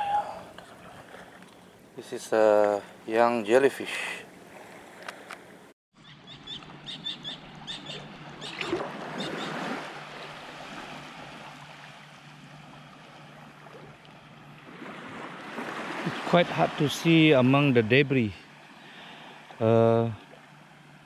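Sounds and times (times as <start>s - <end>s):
wading through shallow water: 6.4s - 21.0s.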